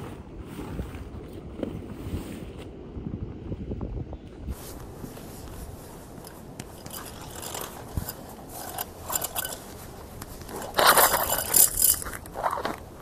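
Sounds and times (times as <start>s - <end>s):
metal tent pegs clattering: 6.2s - 12.6s.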